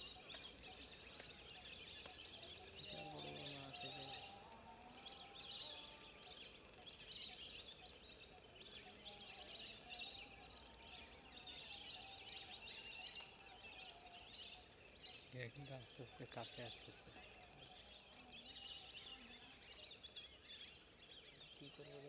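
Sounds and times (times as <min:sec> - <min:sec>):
birds chirping: 0:00.0 - 0:22.0
soft outdoor hiss: 0:00.0 - 0:22.0.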